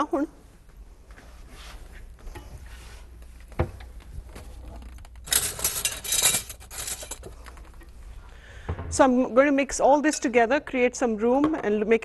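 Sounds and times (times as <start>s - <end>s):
dishes and utensils clattering: 5.3s - 7.4s.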